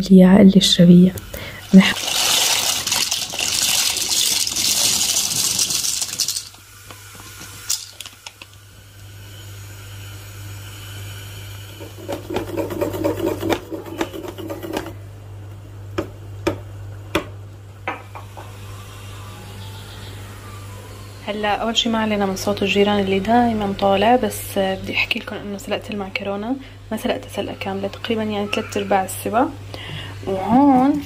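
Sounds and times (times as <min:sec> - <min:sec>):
low steady hum: 0:00.0 - 0:31.0
water running: 0:01.4 - 0:08.4.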